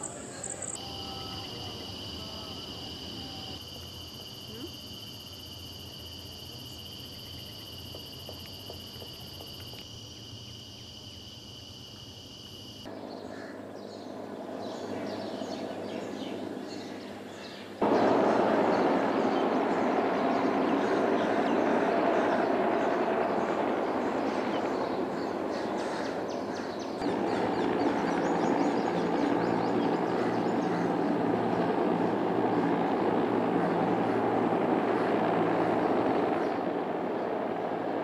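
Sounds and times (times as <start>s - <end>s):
high insect drone: 0.0s - 38.0s
helicopter engine and rotor noise: 12.8s - 38.0s.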